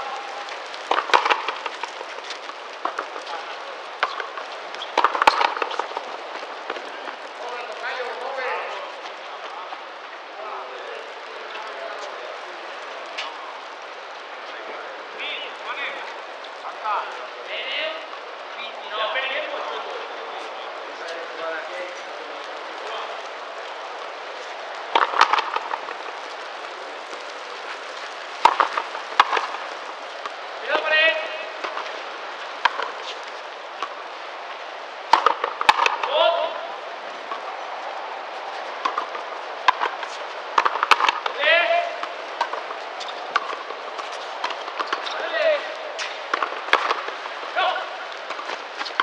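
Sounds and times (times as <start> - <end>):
court ambience hiss: 0.0 - 49.0
racket striking ball: 0.8 - 3.4, 4.0 - 6.8, 24.9 - 26.4, 27.8 - 32.0, 32.6 - 33.2, 33.8 - 34.0, 35.1 - 36.6, 38.8 - 49.0
ball hitting wall and floor: 0.9 - 6.1, 25.0 - 26.2, 28.4 - 29.6, 35.1 - 36.6, 38.8 - 49.0.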